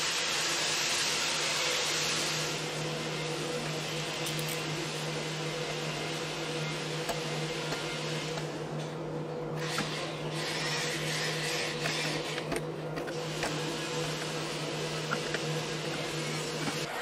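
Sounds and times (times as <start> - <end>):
power tool motor hum: 9.6 - 17.0.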